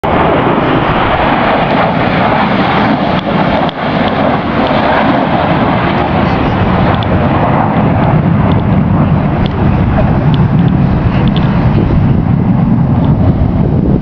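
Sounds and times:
military jets flying over: 0.0s - 14.0s.

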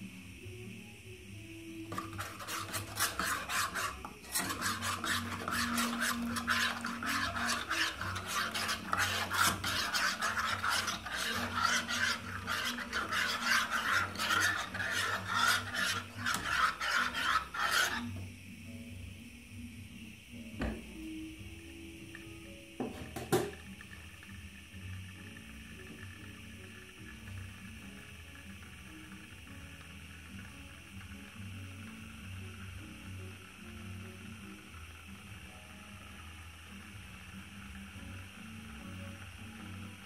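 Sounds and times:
metal spoon scraping metal pot: 1.9s - 18.2s.

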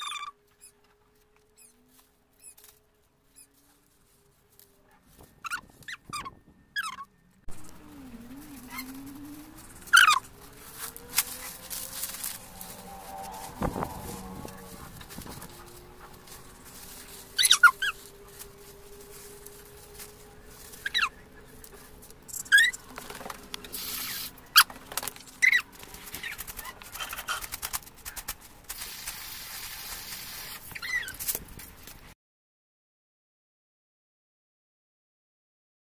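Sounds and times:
sharp bird chirps: 0.0s - 0.8s, 22.3s - 22.9s.

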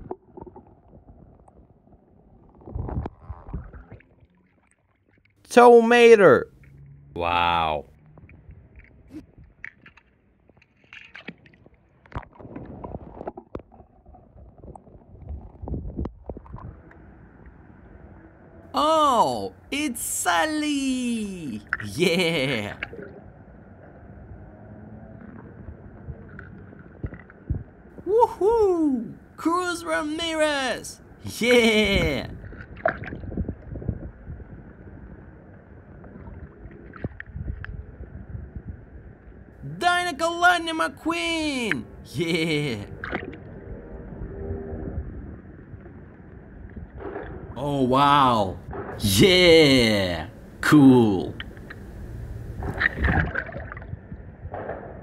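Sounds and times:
underwater gurgling and sloshing: 0.0s - 5.4s, 8.0s - 18.6s, 22.8s - 27.9s, 32.4s - 39.5s, 42.9s - 47.6s, 51.4s - 55.0s
wind rumbling on microphone: 0.7s - 4.0s, 14.2s - 18.2s, 25.5s - 27.8s, 32.3s - 39.5s, 51.4s - 55.0s.

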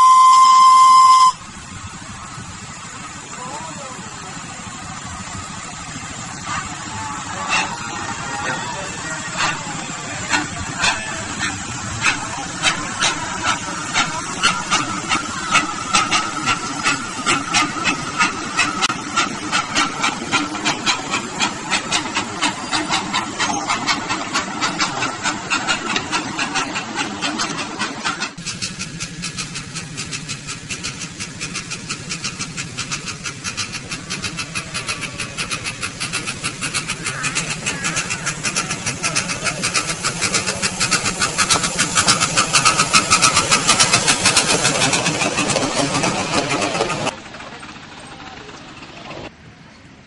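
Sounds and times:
steam locomotive exhaust chuffing: 0.0s - 50.0s.

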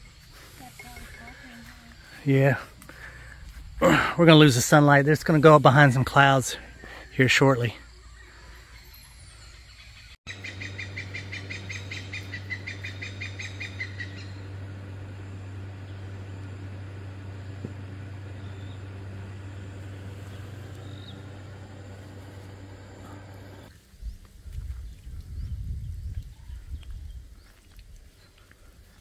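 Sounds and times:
steady low hum: 10.3s - 23.7s.

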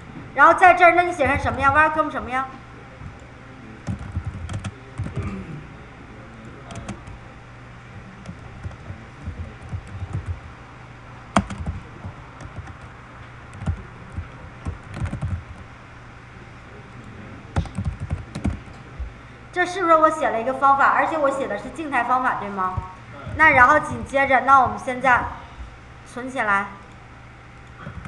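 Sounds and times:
keyboard typing: 3.8s - 5.2s, 6.7s - 7.2s, 8.2s - 10.5s, 11.4s - 12.9s, 13.5s - 15.6s, 17.6s - 18.7s.

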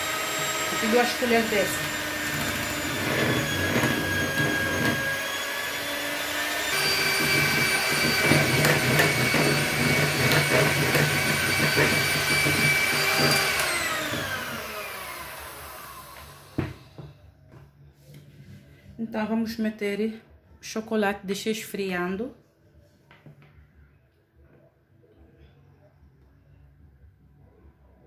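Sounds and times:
electric hand mixer motor whining: 0.0s - 17.0s.

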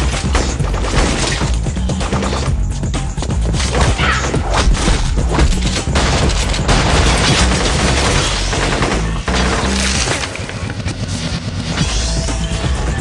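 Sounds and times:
crashing debris: 3.7s - 10.9s
booming impacts: 3.8s - 10.7s
rapid gunfire: 3.9s - 11.8s
music with heavy bass: 11.2s - 13.0s.

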